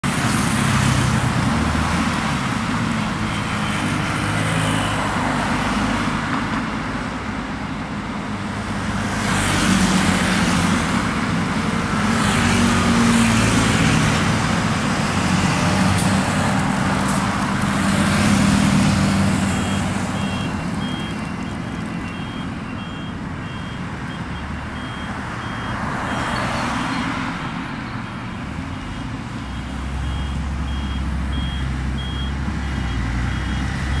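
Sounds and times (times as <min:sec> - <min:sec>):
vehicles passing: 0:00.0 - 0:34.0
vehicle warning beep: 0:19.4 - 0:27.1, 0:27.9 - 0:34.0.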